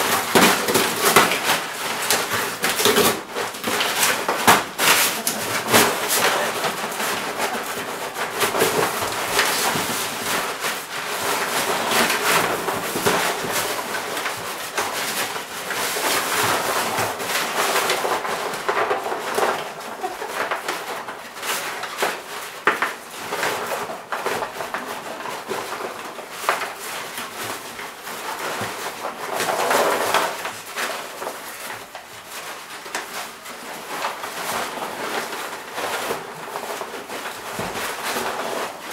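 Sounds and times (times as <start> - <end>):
dog tearing paper wrapping: 0.0 - 38.9.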